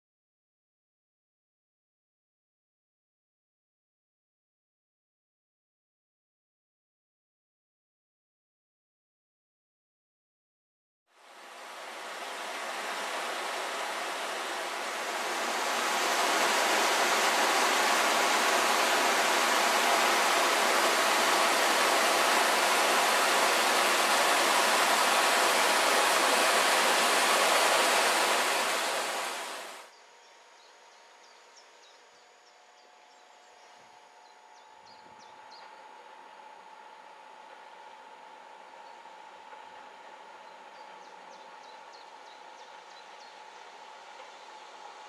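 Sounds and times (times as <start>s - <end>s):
stream rushing over rocks: 11.2s - 29.9s.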